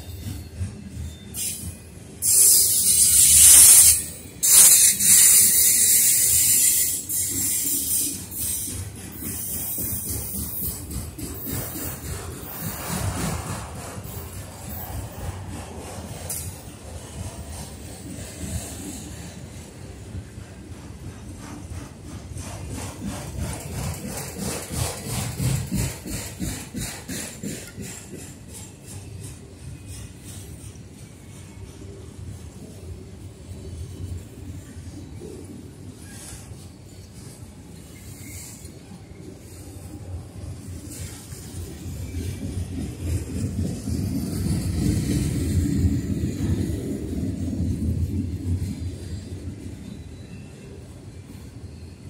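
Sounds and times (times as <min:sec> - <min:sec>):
low train rumble: 0:00.0 - 0:52.0
train wheels clattering on rails: 0:00.0 - 0:52.0
hiss: 0:01.4 - 0:19.7, 0:21.1 - 0:29.0.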